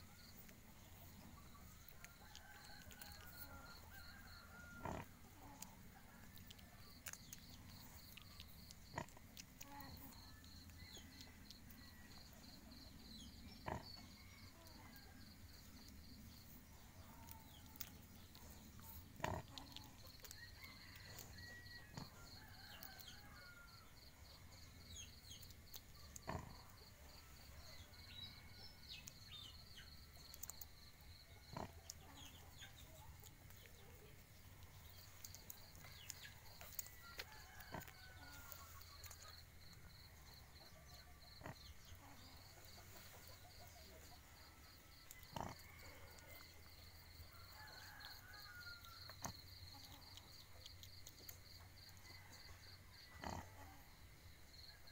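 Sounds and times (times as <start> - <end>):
pigs grunting softly: 4.8 - 6.3, 7.1 - 10.2, 13.4 - 15.0, 17.0 - 20.4, 26.0 - 27.0, 31.3 - 39.2, 45.1 - 46.7, 53.1 - 53.9.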